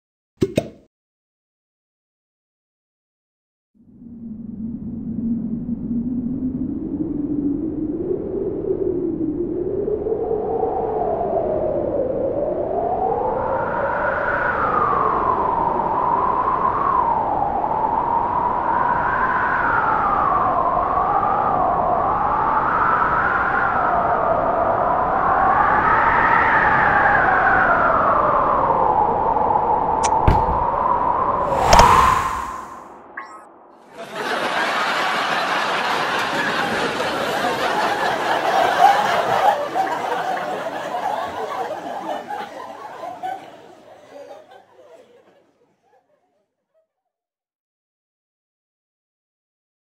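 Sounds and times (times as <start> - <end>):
wind howling: 29.2 - 33.7
group of people laughing: 33.9 - 46.5.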